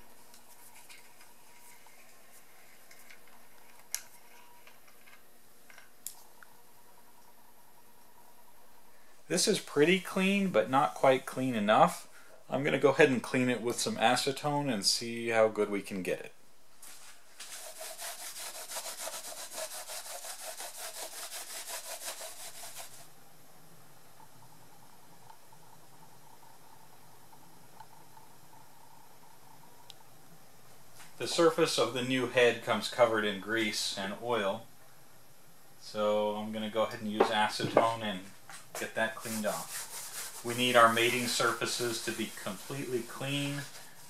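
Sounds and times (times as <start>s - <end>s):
towel scrubbing metal: 17.4s - 23.1s, 38.9s - 44.0s.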